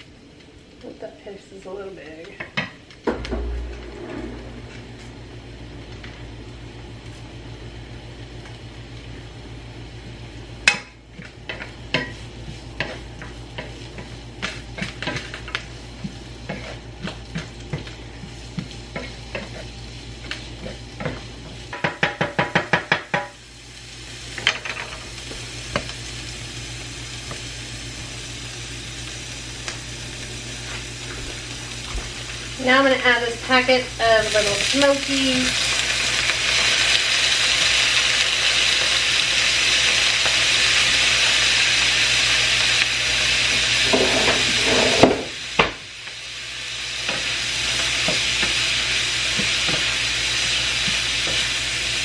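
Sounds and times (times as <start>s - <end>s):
vegetables sizzling in oil: 5.0s - 52.0s
spatula scraping a pan: 16.0s - 17.6s, 18.2s - 21.6s, 43.8s - 45.3s.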